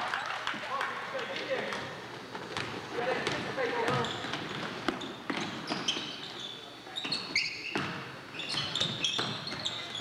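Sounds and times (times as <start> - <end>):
basketball bouncing on gym floor: 2.5 - 5.9
sneaker squeaks: 3.8 - 10.0.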